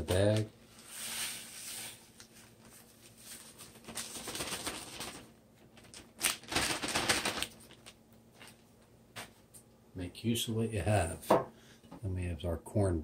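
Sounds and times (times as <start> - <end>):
plastic bag crinkling and rustling: 0.0 - 8.7
taco shell pieces shaken out: 3.9 - 5.3, 6.0 - 8.0.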